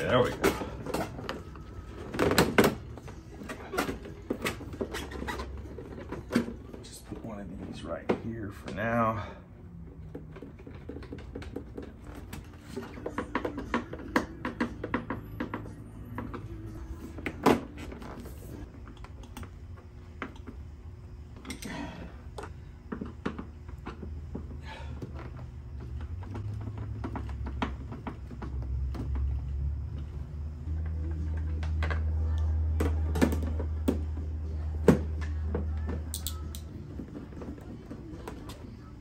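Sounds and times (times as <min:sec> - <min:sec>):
tools clicking and knocking: 0:36.1 - 0:36.7.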